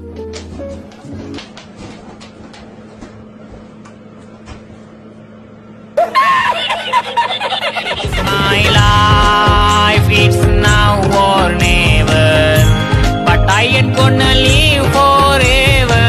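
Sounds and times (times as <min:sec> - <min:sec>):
low steady hum: 0:00.8 - 0:16.0
loud wavering voice: 0:07.8 - 0:09.8
music with a beat: 0:08.1 - 0:16.0.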